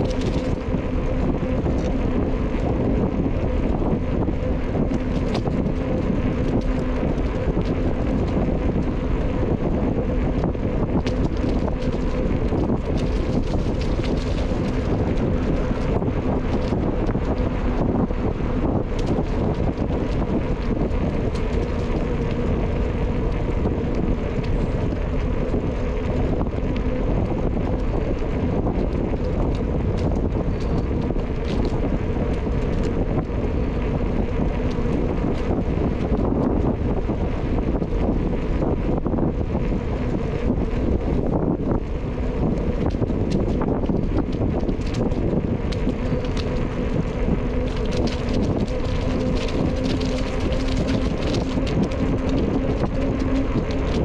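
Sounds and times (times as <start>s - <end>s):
low steady hum: 0.0s - 54.0s
wind buffeting microphone: 0.0s - 54.0s
faint ticks: 18.7s - 54.0s.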